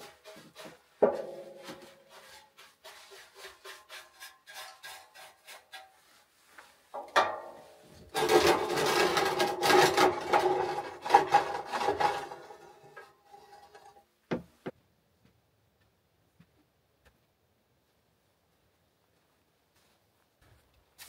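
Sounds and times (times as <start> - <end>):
metal scraping on wood stove: 0.0 - 14.1.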